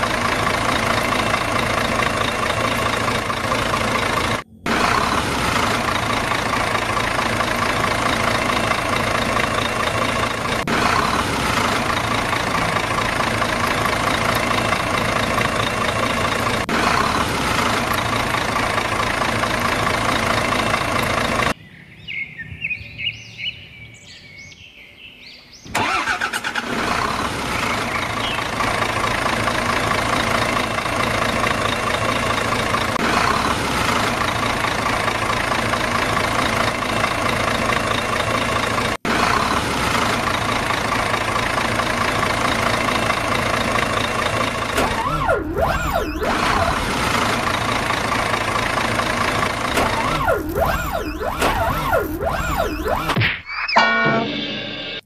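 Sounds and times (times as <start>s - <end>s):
vehicle engine running: 0.0s - 21.6s, 25.8s - 53.2s
birds chirping: 20.0s - 25.8s, 27.6s - 29.3s.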